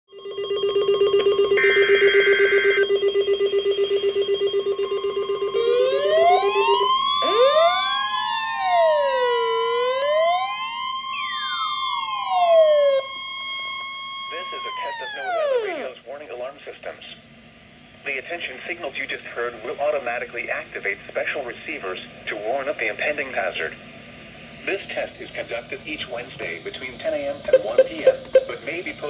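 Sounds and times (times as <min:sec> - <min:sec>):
steady alarm tone: 0:00.1 - 0:16.0, 0:27.5 - 0:28.6
siren-like wails: 0:01.0 - 0:16.0
fast-pulsing beep: 0:27.5 - 0:28.6.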